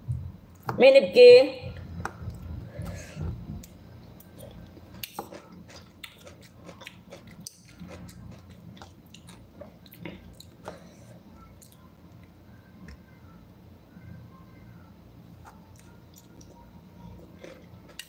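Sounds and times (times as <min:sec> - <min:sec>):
chewing raw vegetables: 0:03.6 - 0:10.9.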